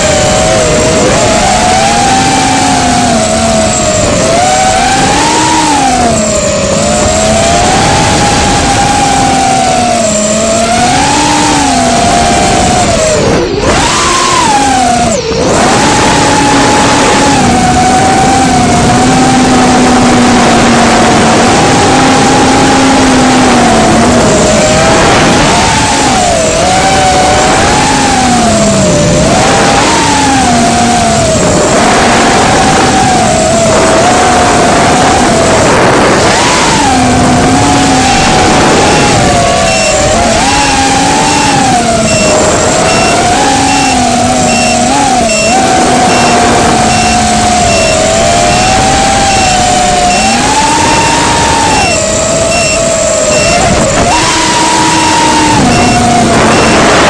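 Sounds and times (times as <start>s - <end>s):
drone motors whining: 0.0s - 57.0s
wind rush on microphone: 0.0s - 57.0s
faint high beep: 37.5s - 57.0s.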